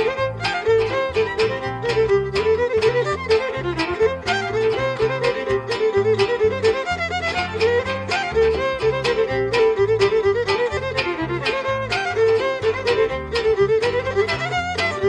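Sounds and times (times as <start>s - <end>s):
bass line: 0.0s - 15.0s
strummed chords: 0.0s - 15.0s
violin melody: 0.0s - 15.0s.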